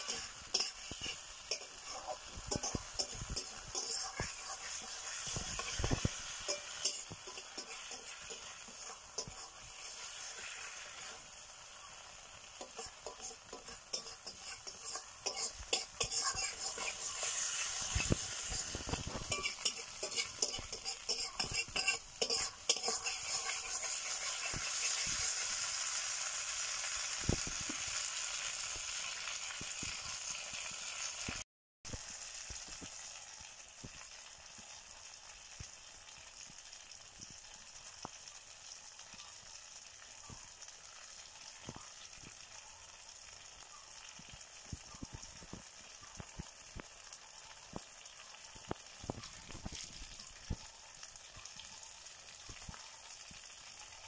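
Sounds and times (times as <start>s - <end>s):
wooden spatula scraping a pan: 0.0s - 11.2s, 12.6s - 25.2s
chicken sizzling in a pan: 0.0s - 54.0s
small pops of frying: 0.0s - 54.0s.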